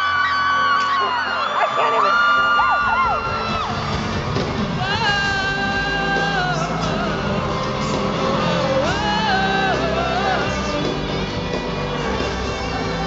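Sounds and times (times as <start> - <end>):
live band music: 1.0 - 13.0.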